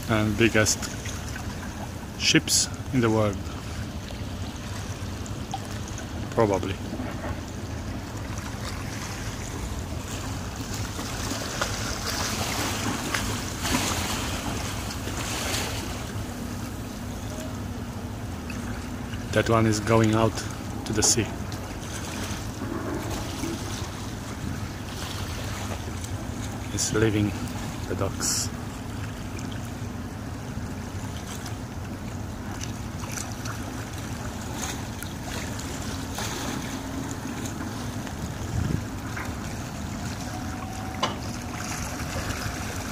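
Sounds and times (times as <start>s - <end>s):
small waves lapping: 0.0s - 42.9s
steady low rumble: 0.0s - 42.9s
wind buffeting microphone: 38.1s - 40.2s.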